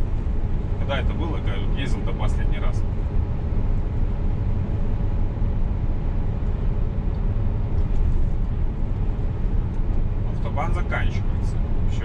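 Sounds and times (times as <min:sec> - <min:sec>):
road and tyre noise: 0:00.0 - 0:12.0
truck engine drone: 0:00.0 - 0:12.0.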